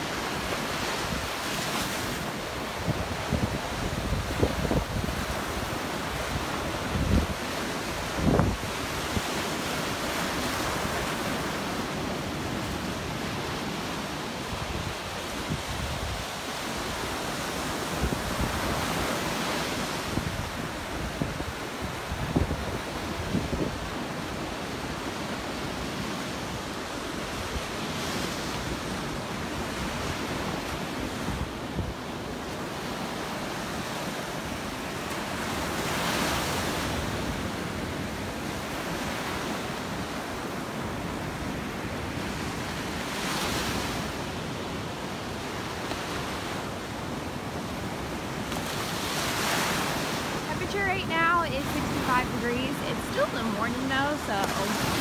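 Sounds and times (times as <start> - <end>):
small waves washing on sand: 0.0 - 55.0
wind rumble on microphone: 0.5 - 11.4, 14.4 - 24.5.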